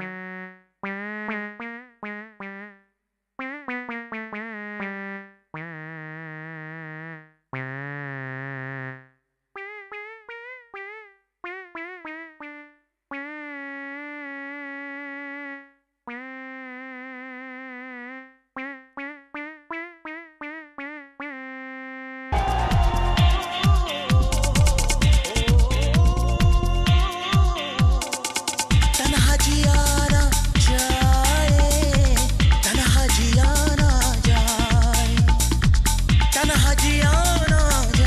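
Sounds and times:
dance music with a beat: 22.4 - 38.0
electronic keyboard melody: 22.4 - 38.0.

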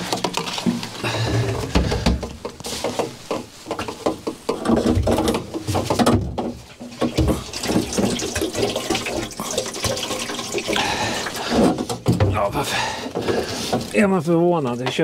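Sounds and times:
fuel splashing into a can: 6.9 - 11.8.

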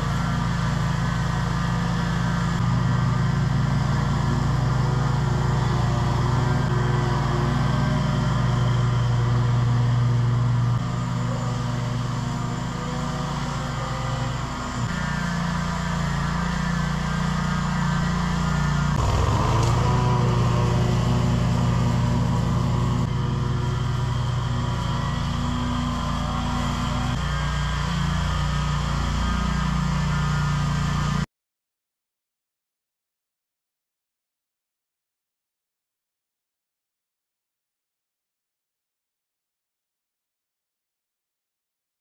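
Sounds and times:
mower engine running: 0.0 - 31.2.

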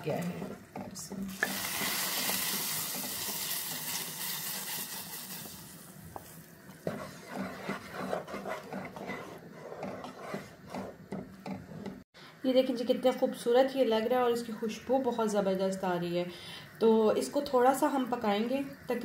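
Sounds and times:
wooden spoon scraping and tapping pan: 0.0 - 4.0, 5.4 - 12.0
hot sugar hissing and sizzling: 1.3 - 8.0.

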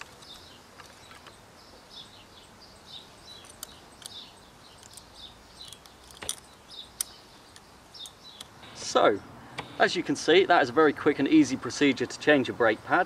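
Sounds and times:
small birds chirping: 0.0 - 13.0
light metallic clicks: 3.3 - 8.6.

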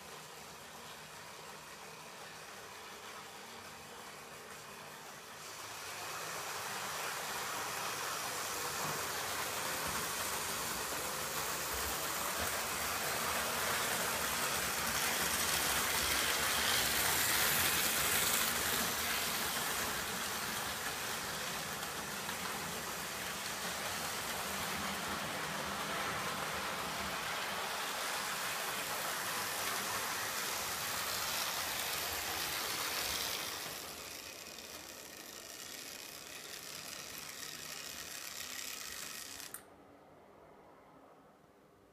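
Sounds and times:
model train motor whirring: 0.0 - 39.6.

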